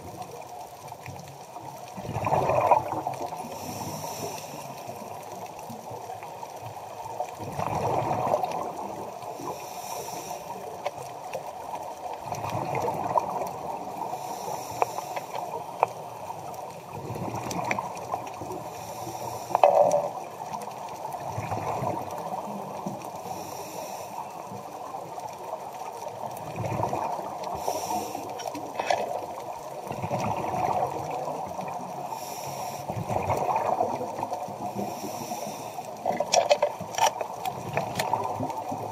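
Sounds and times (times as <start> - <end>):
diver's bubbles gurgling: 1.7 - 4.1, 6.8 - 9.6, 12.0 - 23.4, 25.0 - 32.2, 32.9 - 38.9
watery hiss: 2.0 - 5.5, 7.6 - 11.8, 12.7 - 17.0, 17.6 - 38.9.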